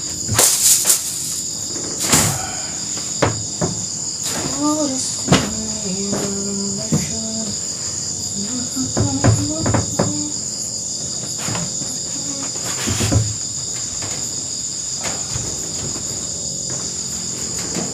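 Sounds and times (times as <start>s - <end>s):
crickets and insects chirping: 0.0s - 17.9s
bedding thumps on wooden floor: 3.1s - 7.3s.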